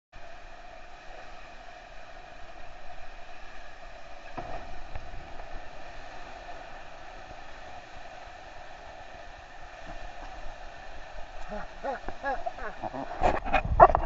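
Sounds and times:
waterfall rushing: 4.4s - 13.3s.

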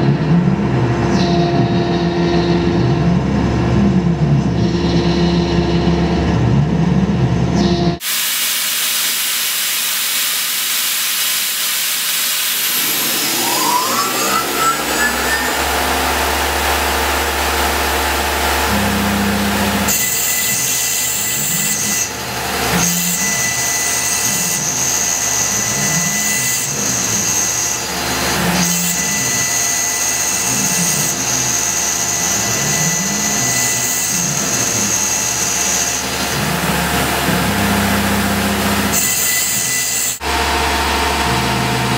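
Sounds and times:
mill spindle whine: 0.0s - 41.9s
high cutting hiss: 8.0s - 16.2s
low warbling hum: 11.5s - 19.9s.

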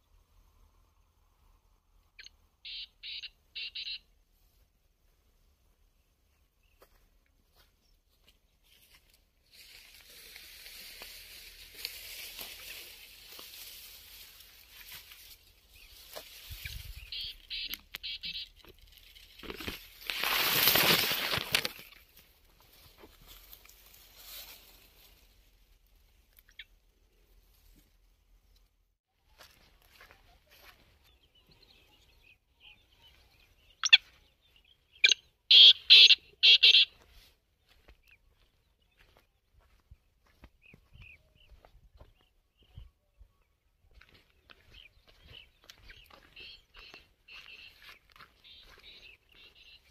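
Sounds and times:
francolin calling harshly: 2.2s - 4.1s, 11.1s - 18.8s, 33.7s - 34.2s, 34.9s - 37.0s
dry grass rustling on microphone: 6.3s - 28.6s, 29.3s - 31.8s, 32.7s - 42.9s, 43.8s - 49.9s.

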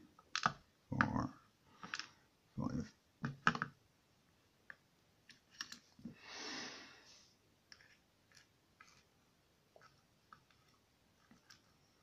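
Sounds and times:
soft breathy rush: 6.1s - 7.4s.

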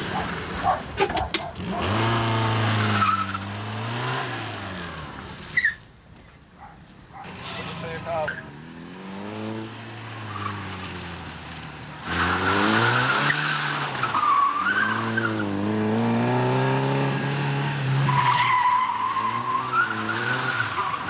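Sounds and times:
car engine revving: 0.0s - 5.8s, 7.1s - 21.0s
tyres squealing: 6.6s - 8.6s.

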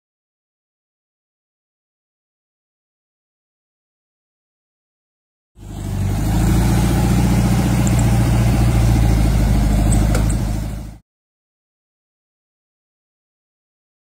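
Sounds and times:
car engine idling: 5.6s - 11.0s.

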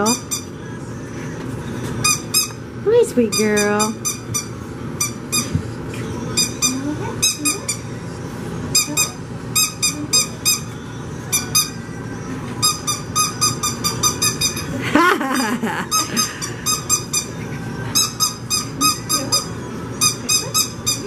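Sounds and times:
squeaky dog toy squeaking: 0.0s - 0.5s, 2.0s - 2.6s, 3.2s - 5.5s, 6.4s - 7.9s, 8.7s - 11.8s, 12.6s - 14.8s, 15.9s - 21.0s.

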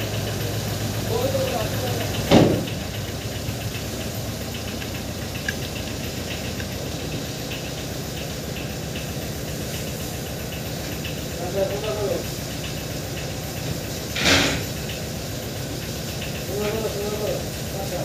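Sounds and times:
mechanical running hum: 0.0s - 18.0s
faint light ticks: 4.8s - 6.8s.

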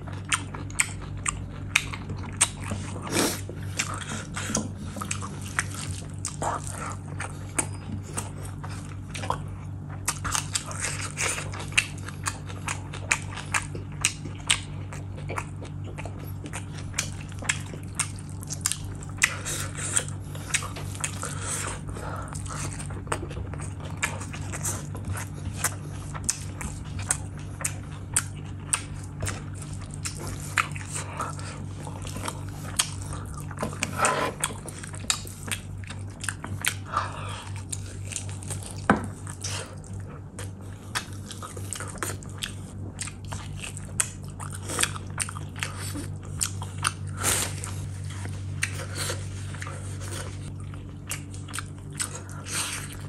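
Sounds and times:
wet chewing and lip smacks: 0.1s - 53.0s.

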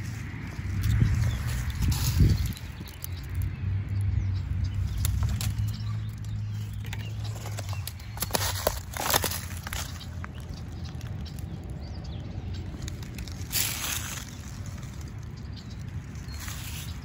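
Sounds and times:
footsteps rustling in dry leaves: 0.0s - 3.5s, 4.5s - 17.0s
steady low rumble: 0.0s - 17.0s.

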